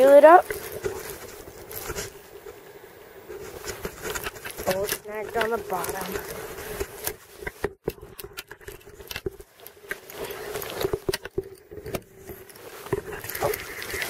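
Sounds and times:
reel clicks and rattles: 3.4s - 14.0s.

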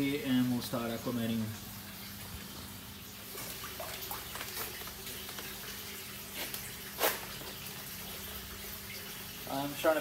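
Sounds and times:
water sloshing in plastic bag: 3.2s - 7.8s
sharp plastic bag rustle: 3.4s - 5.6s, 6.3s - 7.6s.

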